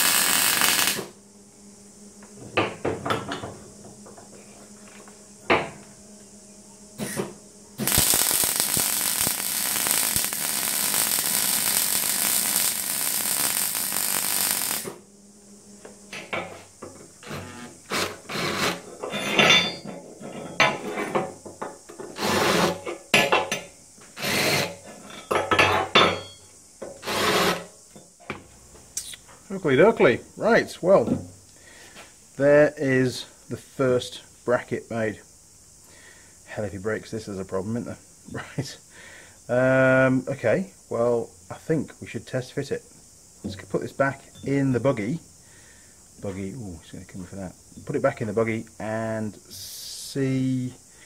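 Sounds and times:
welder crackling hiss: 0.0s - 1.2s, 7.0s - 15.1s, 16.1s - 19.7s, 20.9s - 26.1s, 26.9s - 27.8s, 31.4s - 51.0s
scraping and knocking on metal: 16.1s - 27.7s.

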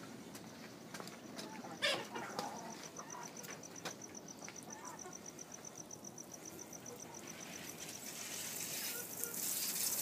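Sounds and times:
insect chirping: 1.2s - 10.0s
water spraying with a hiss: 7.4s - 10.0s.

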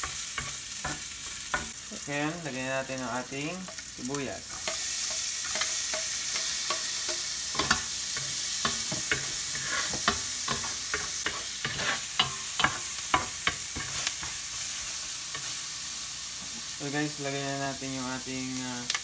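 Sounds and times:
onion sizzling in hot oil: 0.0s - 19.0s
spatula scraping a pot: 4.6s - 14.4s.

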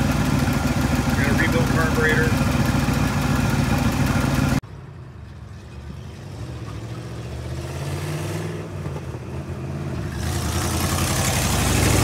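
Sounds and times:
truck engine idling: 0.0s - 4.6s
truck engine approaching: 0.0s - 12.0s.

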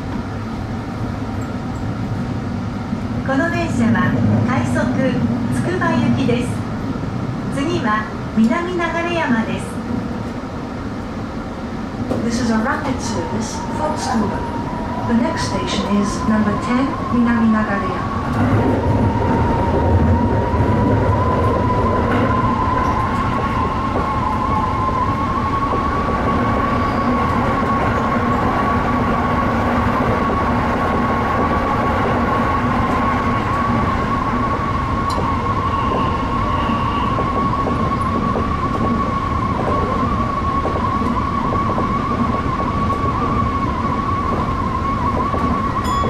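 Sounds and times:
electric train rumbling: 0.0s - 46.0s
high-pitched train whine: 12.4s - 46.0s.

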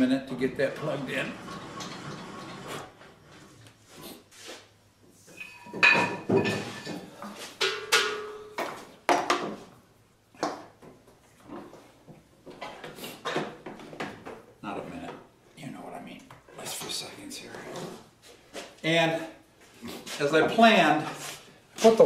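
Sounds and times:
hard objects clattering and knocking: 1.4s - 3.5s, 5.3s - 9.7s.

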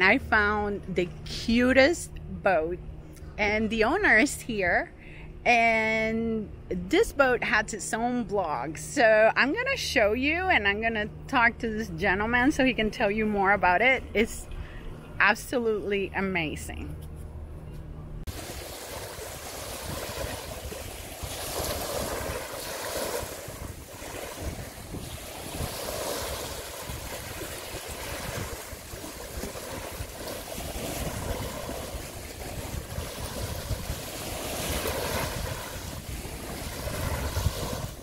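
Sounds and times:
sea waves washing in: 18.3s - 38.0s
wind rumbling on microphone: 18.3s - 38.0s.

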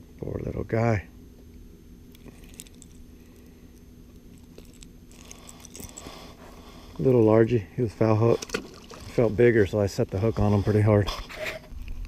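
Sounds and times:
low steady hum: 0.0s - 12.0s
metallic clicks and jingles: 2.2s - 6.4s.

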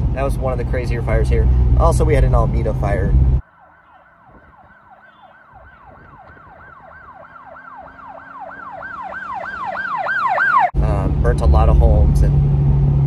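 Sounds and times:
emergency siren yelping: 3.4s - 10.8s.

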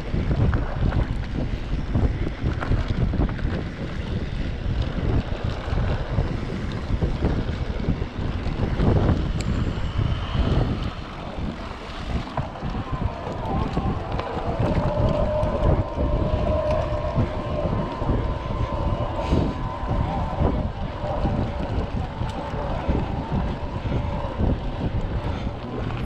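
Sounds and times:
mountain bike rattling on dirt trail: 0.0s - 26.0s
wind buffeting microphone: 0.0s - 26.0s.

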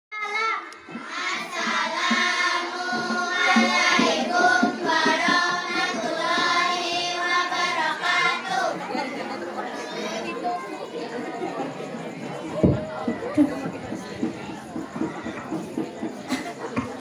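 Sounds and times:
girls chanting in unison: 0.9s - 10.4s.

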